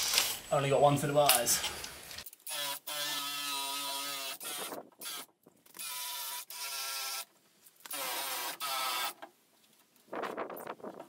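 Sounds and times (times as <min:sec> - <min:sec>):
power drill wire brush whining: 0:02.4 - 0:09.2.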